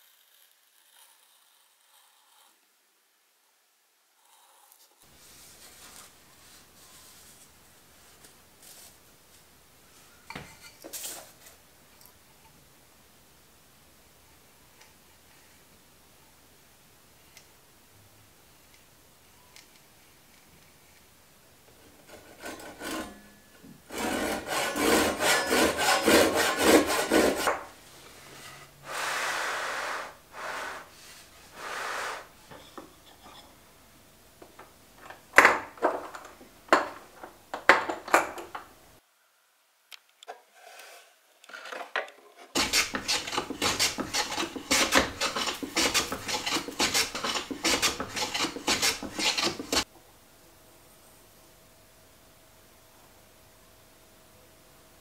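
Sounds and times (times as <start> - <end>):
handsaw cutting wood: 22.2 - 23.1, 23.9 - 27.6, 42.6 - 49.9.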